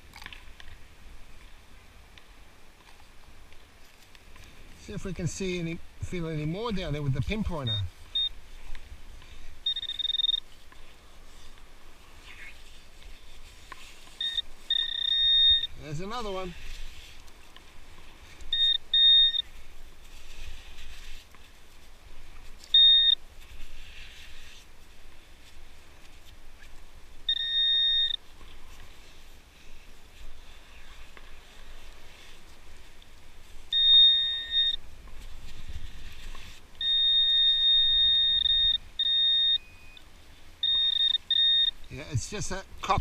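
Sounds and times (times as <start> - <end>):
metal detector alert tone: 6.0 - 8.4, 9.6 - 10.5, 14.2 - 16.6, 18.5 - 19.5, 22.7 - 23.2, 27.3 - 28.2, 33.7 - 34.8, 36.8 - 40.0, 40.6 - 42.6
sand scraping: 9.4 - 18.4, 19.0 - 26.4.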